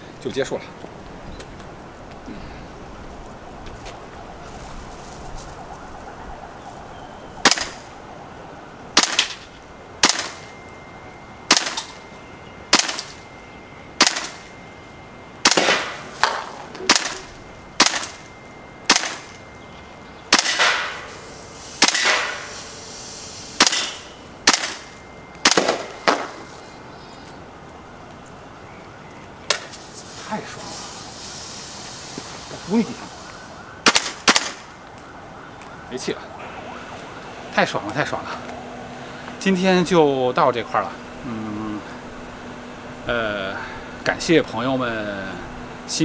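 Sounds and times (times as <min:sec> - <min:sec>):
airsoft rifle shots: 0:07.4 - 0:07.9, 0:09.0 - 0:09.4, 0:10.0 - 0:10.4, 0:11.5 - 0:12.0, 0:12.7 - 0:13.2, 0:14.0 - 0:14.5, 0:15.4 - 0:18.2, 0:18.9 - 0:19.4, 0:20.3 - 0:21.2, 0:21.8 - 0:22.6, 0:23.6 - 0:26.4, 0:33.8 - 0:34.7.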